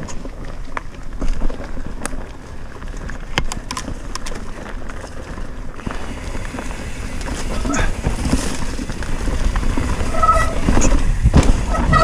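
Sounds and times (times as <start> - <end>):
bike rattling and clicking: 0.0 - 12.0
bike tyres on dirt trail: 0.0 - 12.0
wind on microphone: 5.6 - 12.0.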